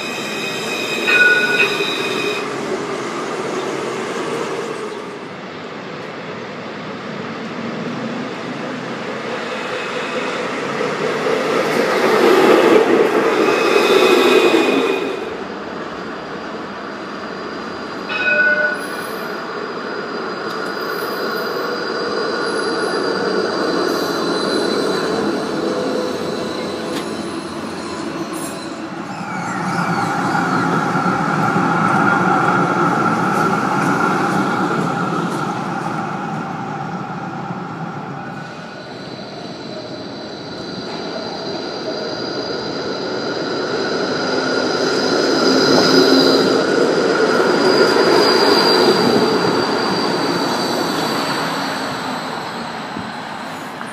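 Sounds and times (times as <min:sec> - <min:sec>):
tram wheels rolling: 0:00.0 - 0:05.2, 0:17.6 - 0:53.9
wheels squealing on rails: 0:00.0 - 0:05.3, 0:08.5 - 0:53.9
short ringing tone: 0:18.1 - 0:19.0.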